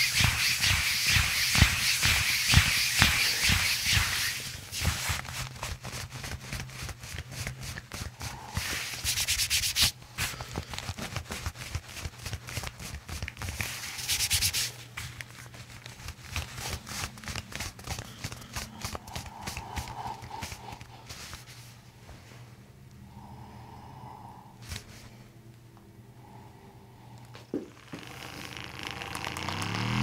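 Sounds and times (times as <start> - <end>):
hands rubbing over cotton shirt: 0.0 - 22.3.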